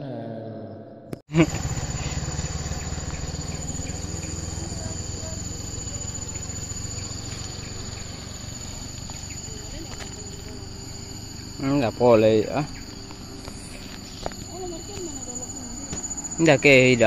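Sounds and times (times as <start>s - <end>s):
insects buzzing: 1.3s - 17.0s
motorcycle engine putter: 1.4s - 10.6s.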